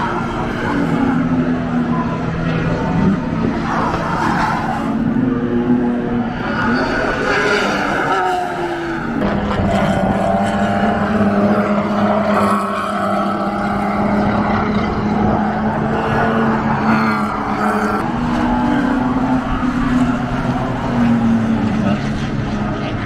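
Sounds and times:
race car engines droning: 0:00.0 - 0:23.0.

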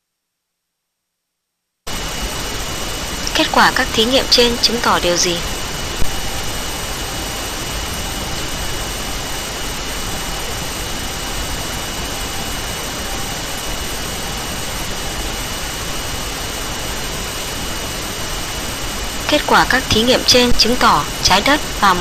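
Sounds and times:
thin high whine: 0:01.9 - 0:22.0.

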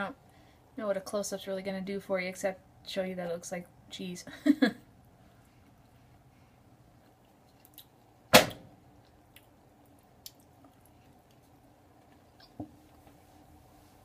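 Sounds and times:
quiet chewing: 0:05.1 - 0:08.2, 0:08.9 - 0:13.2.

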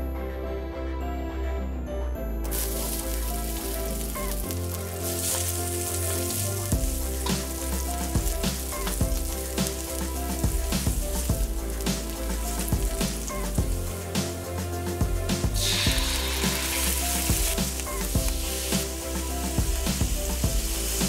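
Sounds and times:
garlic sizzling in oil: 0:02.4 - 0:21.0.

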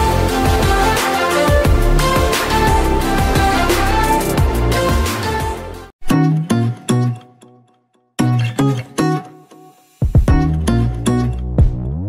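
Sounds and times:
electronic music with heavy bass beat: 0:00.0 - 0:05.9, 0:10.0 - 0:12.0.

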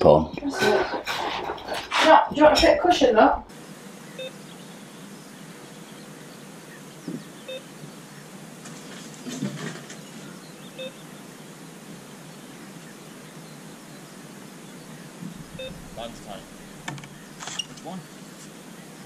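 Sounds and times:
outdoor background hiss: 0:00.0 - 0:19.0
bite alarm bleeps: 0:15.5 - 0:17.4.

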